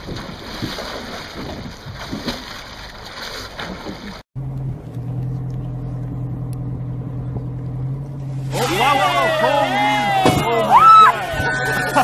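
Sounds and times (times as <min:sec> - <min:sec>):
water splashing and churning: 0:00.0 - 0:04.3, 0:08.2 - 0:12.0
boat engine humming: 0:02.5 - 0:12.0.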